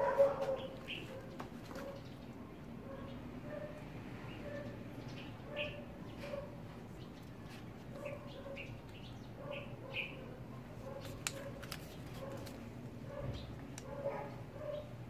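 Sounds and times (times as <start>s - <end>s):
animal chirping: 9.4s - 10.4s.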